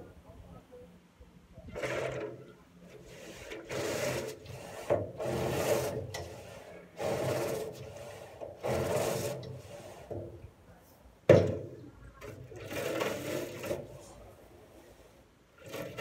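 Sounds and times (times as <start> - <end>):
brush scrubbing a wheelbarrow: 1.7 - 10.4, 12.2 - 16.0.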